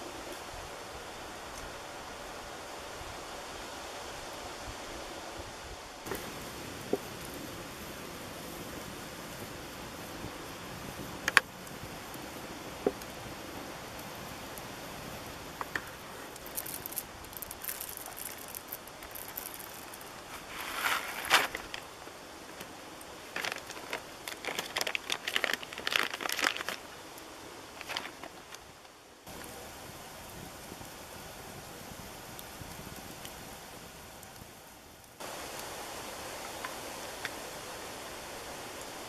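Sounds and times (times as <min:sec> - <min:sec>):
coffee beans rattling into grinder: 0:16.4 - 0:21.8
paper bag crinkling: 0:16.4 - 0:21.9, 0:23.3 - 0:26.9, 0:27.7 - 0:28.6.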